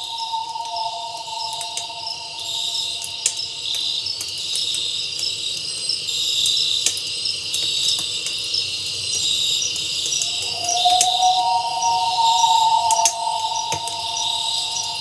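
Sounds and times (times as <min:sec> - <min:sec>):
crickets chirping: 0:00.0 - 0:05.4, 0:09.2 - 0:15.0.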